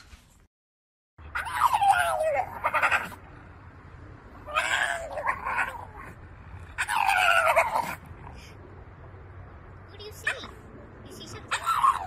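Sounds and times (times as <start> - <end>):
dog howling: 1.3 - 3.2, 4.4 - 6.2, 6.8 - 8.0, 11.5 - 12.0.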